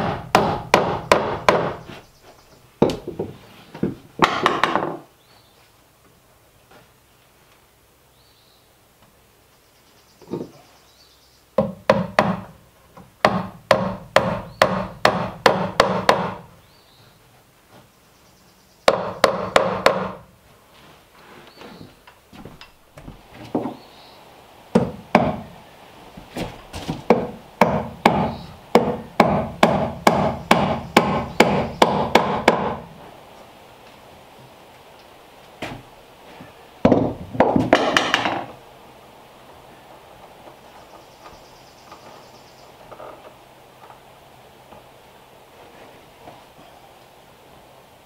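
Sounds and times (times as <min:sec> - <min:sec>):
hammer striking nails into wood: 0:00.0 - 0:01.9, 0:04.2 - 0:05.0, 0:11.6 - 0:12.6, 0:13.2 - 0:16.5, 0:18.9 - 0:20.2, 0:24.7 - 0:25.5, 0:26.8 - 0:32.8, 0:36.8 - 0:38.5.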